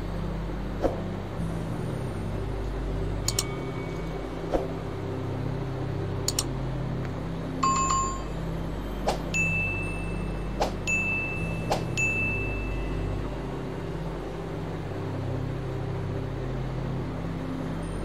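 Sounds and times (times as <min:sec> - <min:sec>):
steady low hum: 0:00.0 - 0:18.0
sharp clicks: 0:03.3 - 0:03.5, 0:06.3 - 0:06.5
bell-like dings: 0:07.6 - 0:08.3, 0:09.4 - 0:13.0.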